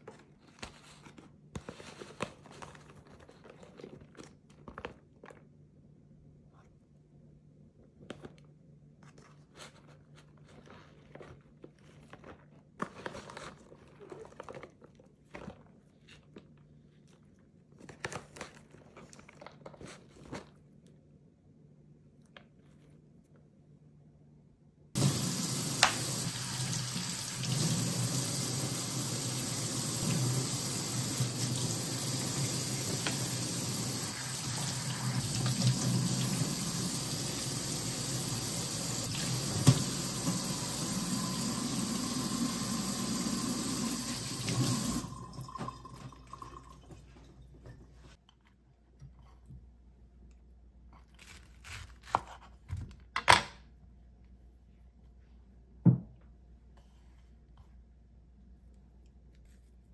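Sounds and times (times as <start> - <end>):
tap water splashing in colander: 25.0 - 28.7, 34.1 - 36.8, 39.0 - 40.5, 44.2 - 47.0.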